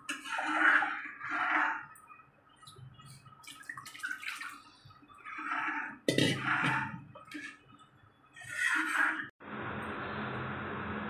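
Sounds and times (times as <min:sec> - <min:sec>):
liquid sloshing in metal pan: 0:00.0 - 0:07.8.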